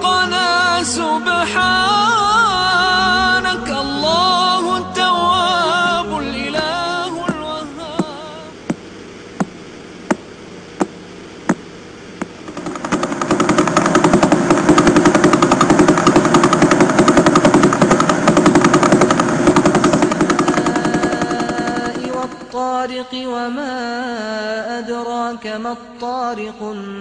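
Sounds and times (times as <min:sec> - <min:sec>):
loud rapid pulse buzz: 0:01.4 - 0:22.9.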